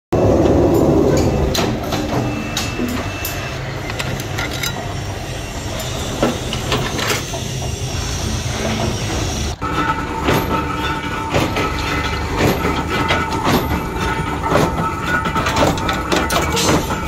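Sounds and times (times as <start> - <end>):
workshop machinery rumbling: 0.1 - 17.0
metallic clanks and knocks: 0.7 - 5.0, 9.6 - 17.0.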